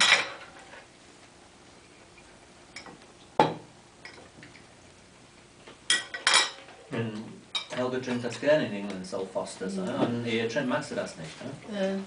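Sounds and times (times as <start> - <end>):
sharp clack of dishes: 0.0 - 0.5, 5.9 - 6.7.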